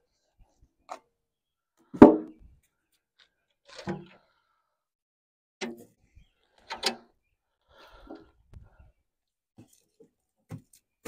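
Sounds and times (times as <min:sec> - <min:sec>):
wood log being handled: 0:09.6 - 0:11.0.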